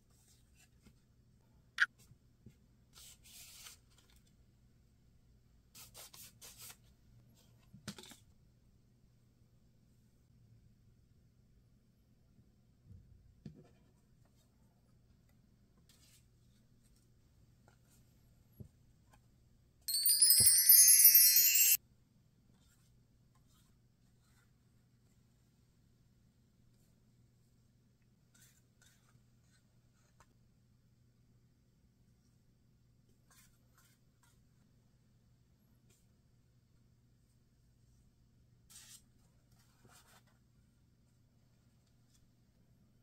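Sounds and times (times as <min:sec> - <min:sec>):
sparkling chime sound effect: 0:19.9 - 0:21.8.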